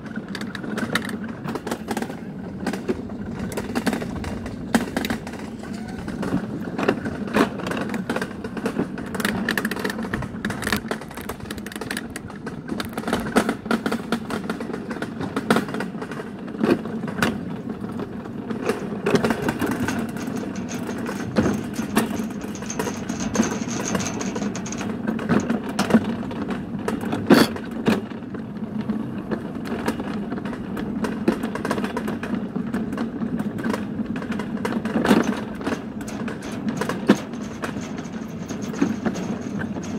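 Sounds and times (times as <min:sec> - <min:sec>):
sled rattling and knocking: 0:00.0 - 0:39.9
sled rumbling down metal trough: 0:00.0 - 0:39.9.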